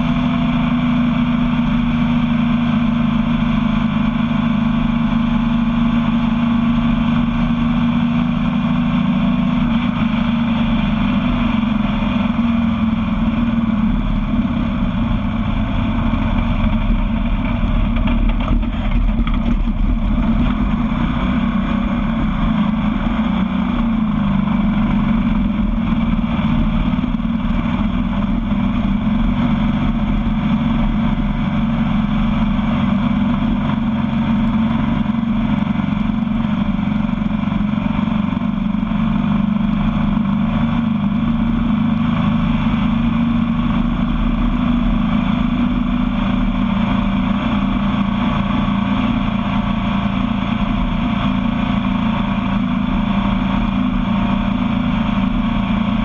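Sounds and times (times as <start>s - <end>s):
buggy engine running: 0.0s - 56.0s
rushing noise: 10.0s - 32.1s.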